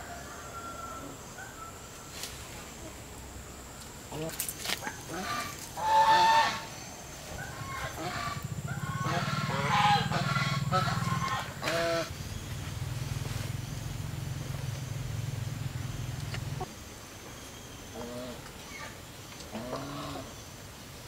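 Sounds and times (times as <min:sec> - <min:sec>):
fowl giving short calls: 0:04.1 - 0:06.7, 0:07.6 - 0:12.1
low pulsing drone: 0:05.0 - 0:16.7.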